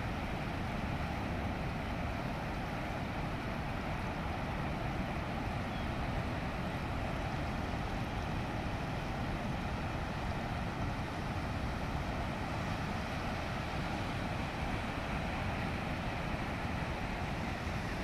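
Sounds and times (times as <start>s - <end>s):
ocean surf on rocky beach: 0.0s - 18.0s.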